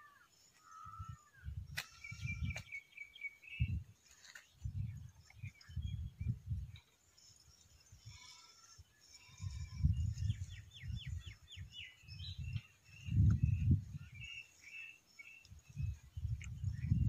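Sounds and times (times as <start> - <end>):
small birds chirping: 0.0 - 17.0
wind buffeting microphone: 0.8 - 2.8, 3.4 - 6.8, 9.3 - 14.4, 15.5 - 17.0.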